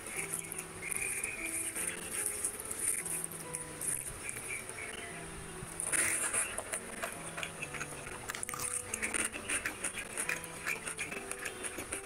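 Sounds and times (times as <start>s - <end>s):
fingers squelching through rice: 0.0s - 5.1s, 5.8s - 12.0s
chewing and lip smacking: 5.9s - 12.0s.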